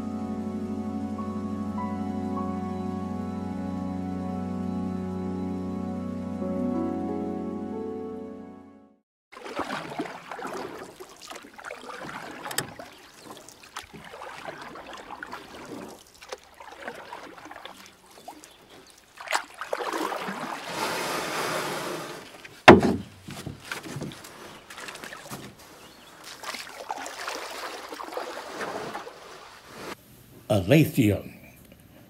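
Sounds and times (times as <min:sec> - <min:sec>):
water splashing and lapping: 0:09.3 - 0:30.0
sharp knocks: 0:22.6 - 0:24.2.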